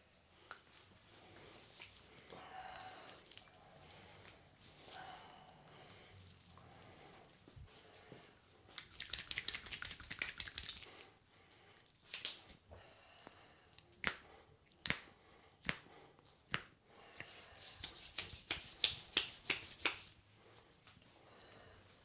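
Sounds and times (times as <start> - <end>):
hands slapping bare skin: 8.7 - 11.0, 12.1 - 12.6, 13.9 - 20.1.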